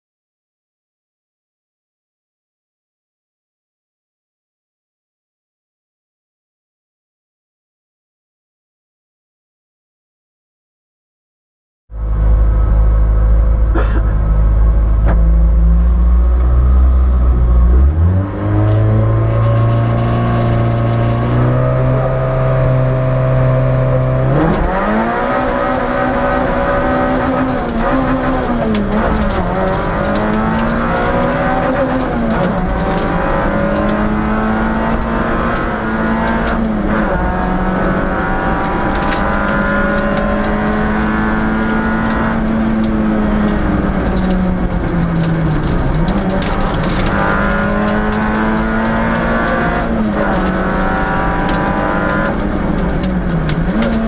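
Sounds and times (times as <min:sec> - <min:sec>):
car engine revving: 0:12.0 - 0:54.0.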